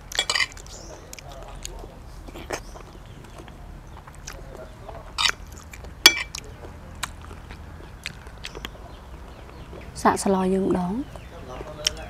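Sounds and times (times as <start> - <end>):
soft chewing: 0.0 - 10.0, 11.0 - 12.0
metal spoon scraping china plate: 6.1 - 6.4.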